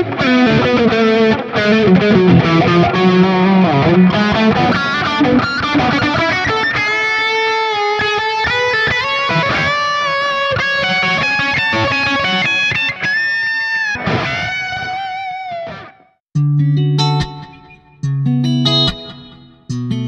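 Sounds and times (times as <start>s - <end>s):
distorted electric guitar lead melody: 0.0s - 20.0s.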